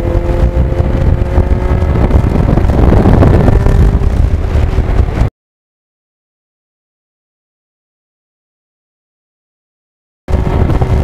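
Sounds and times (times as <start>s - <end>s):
motorcycle engine running: 0.0s - 5.3s, 10.3s - 11.0s
wind buffeting microphone: 0.0s - 5.3s, 10.3s - 11.0s.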